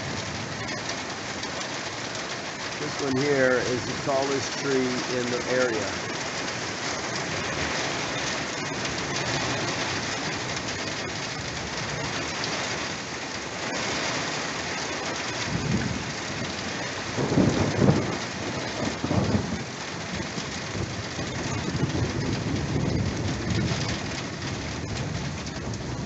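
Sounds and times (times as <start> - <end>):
heavy rain pouring: 0.0 - 26.0
rolling thunder: 15.4 - 26.0.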